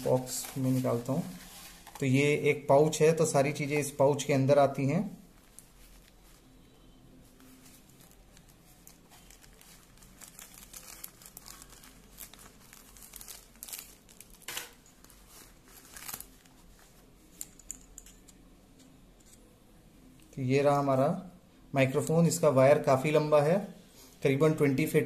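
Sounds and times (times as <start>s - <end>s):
drawstring pouch rustling: 0.0s - 2.2s, 5.3s - 6.6s, 7.2s - 18.3s
plastic bags crinkling: 7.4s - 18.2s.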